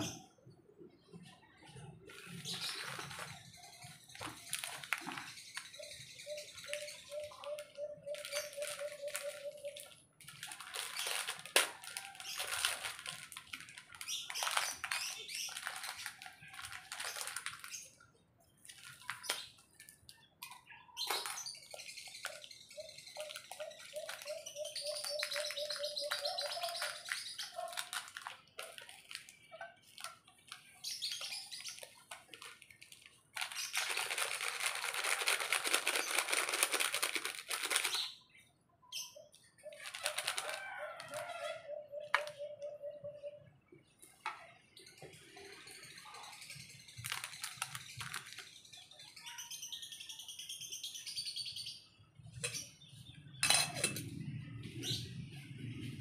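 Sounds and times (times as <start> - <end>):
sachet crinkling: 2.1 - 5.7, 6.5 - 18.0, 18.6 - 20.1, 21.0 - 38.2, 39.7 - 41.5, 47.0 - 48.6.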